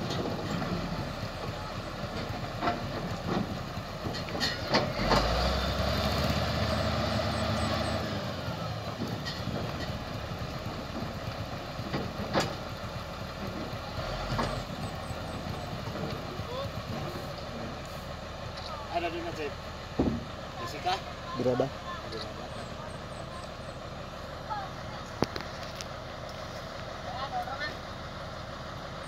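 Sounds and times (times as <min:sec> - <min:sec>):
diesel engine rumbling: 0:00.0 - 0:29.0
metallic clanks: 0:02.1 - 0:05.3.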